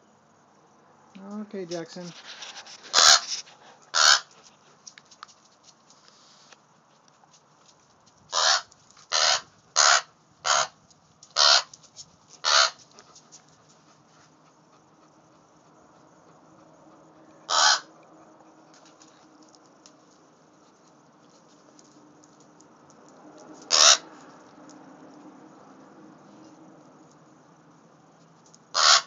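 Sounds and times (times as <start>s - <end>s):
crow cawing: 2.9s - 3.3s, 3.9s - 4.3s, 8.3s - 10.8s, 11.4s - 11.7s, 12.4s - 12.8s, 17.5s - 17.9s, 23.7s - 24.1s, 28.7s - 29.0s.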